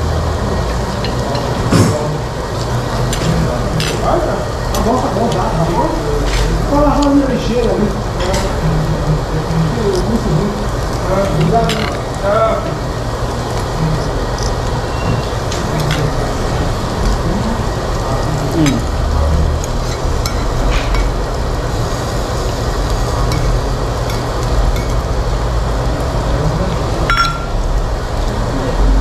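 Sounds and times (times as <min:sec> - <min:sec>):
meat sizzling on a grill: 0:00.0 - 0:29.0
metal cutlery clicks: 0:15.5 - 0:16.1.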